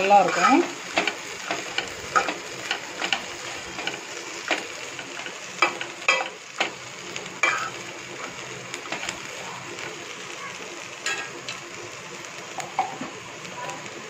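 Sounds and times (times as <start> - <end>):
spatula scraping pan: 0.0 - 6.8, 7.4 - 9.2
oil sizzling: 0.0 - 14.0.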